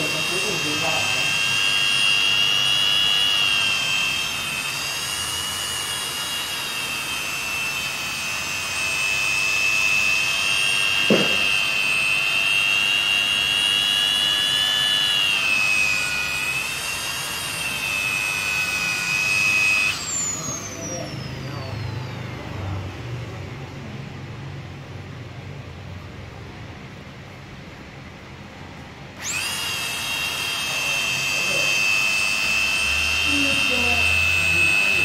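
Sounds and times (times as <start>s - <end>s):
polisher motor whine: 0.0s - 22.8s, 29.1s - 35.0s
short knock: 11.1s - 11.5s.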